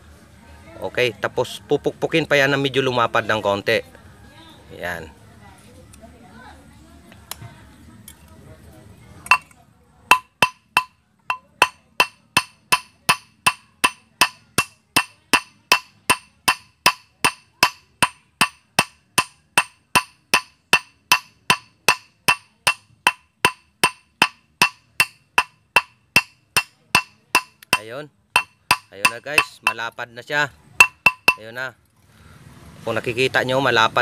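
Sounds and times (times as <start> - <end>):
hammer striking metal: 9.3 - 30.0, 30.8 - 31.5.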